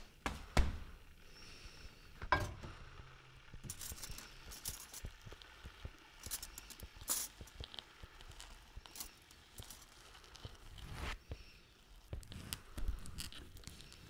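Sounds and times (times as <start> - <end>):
small clicks and ticks: 3.5 - 14.0.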